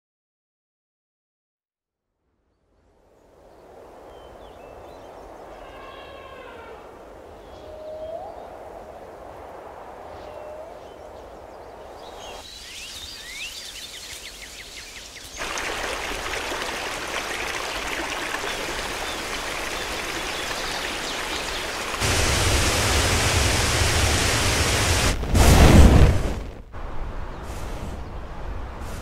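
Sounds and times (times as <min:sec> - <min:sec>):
rushing water: 0:11.8 - 0:25.2.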